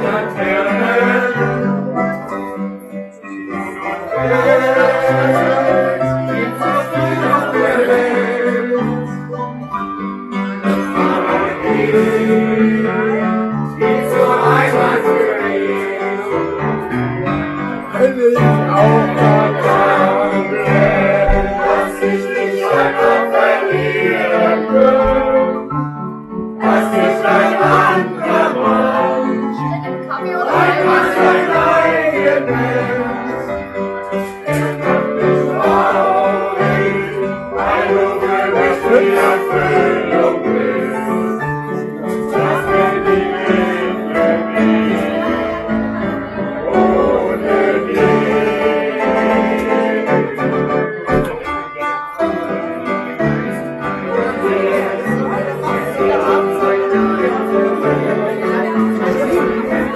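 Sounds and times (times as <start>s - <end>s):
live piano: 0.0s - 59.9s
several voices singing: 0.0s - 59.9s.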